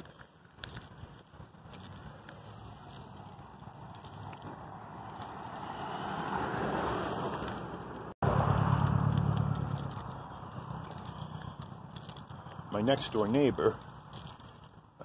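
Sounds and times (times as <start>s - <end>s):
car driving past: 4.7s - 10.1s.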